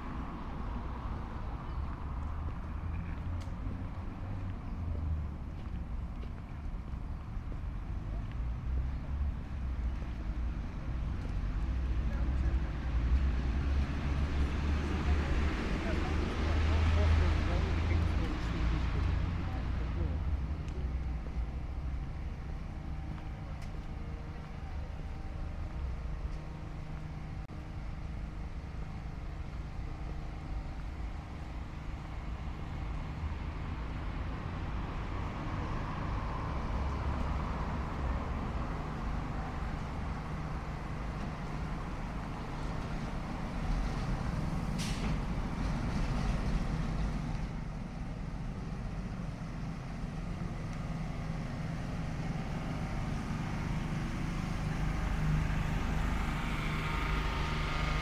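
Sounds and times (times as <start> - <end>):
vehicle engines rumbling past: 0.0 - 58.0.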